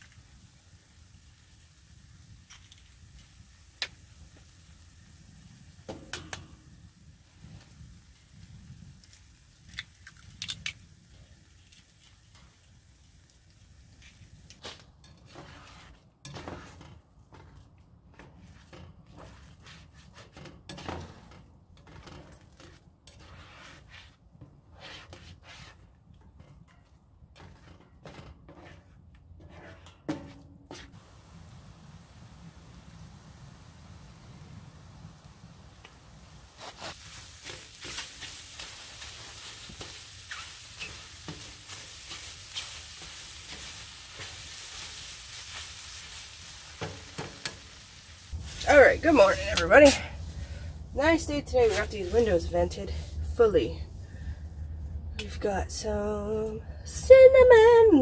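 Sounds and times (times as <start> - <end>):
eggs cracked on pan: 9.0 - 10.9
plastic spatula scraping pan: 15.1 - 25.9, 27.4 - 31.0.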